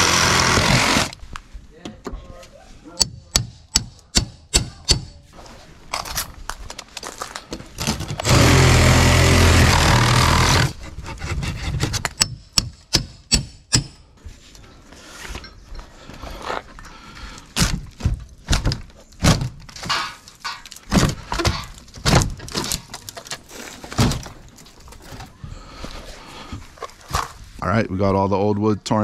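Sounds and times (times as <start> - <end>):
wood cracking: 0.0 - 1.2, 6.4 - 10.8, 17.6 - 25.4
wooden knocks and splintering: 7.6 - 13.9, 17.6 - 25.3.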